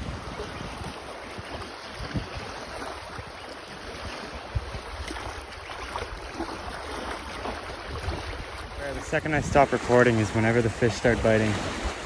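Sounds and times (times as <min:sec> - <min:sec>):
small waves washing against rocks: 0:00.0 - 0:12.0
wind buffeting microphone: 0:00.0 - 0:12.0.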